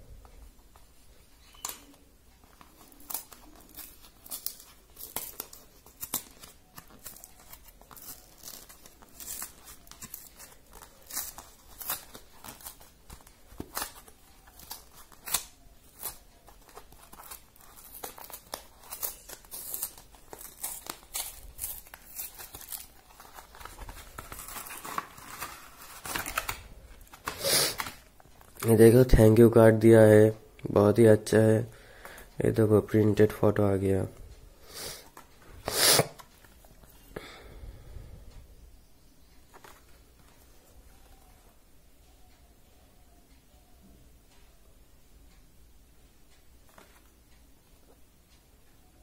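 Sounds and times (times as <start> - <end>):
paper ripping and crinkling: 2.6 - 28.0.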